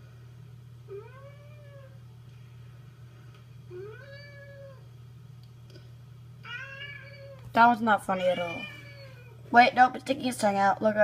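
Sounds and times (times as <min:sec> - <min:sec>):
steady low hum: 0:00.0 - 0:11.0
cat meowing: 0:00.9 - 0:02.0, 0:03.7 - 0:04.8, 0:06.4 - 0:07.4, 0:08.2 - 0:09.4.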